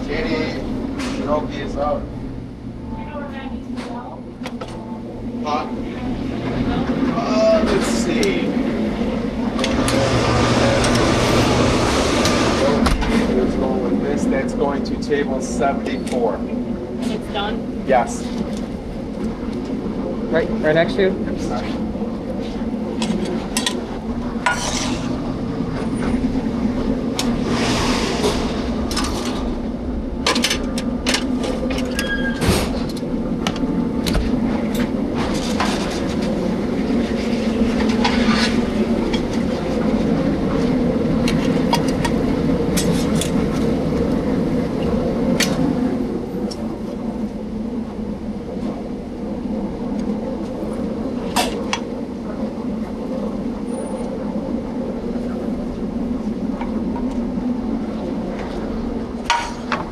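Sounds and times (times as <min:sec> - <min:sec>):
ventilation drone: 0:00.0 - 0:59.9
pans and utensils clattering: 0:24.5 - 0:25.1.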